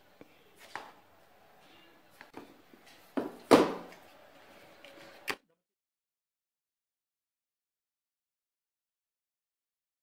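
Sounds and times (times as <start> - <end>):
plastic bowl knocking on countertop: 3.2 - 3.9.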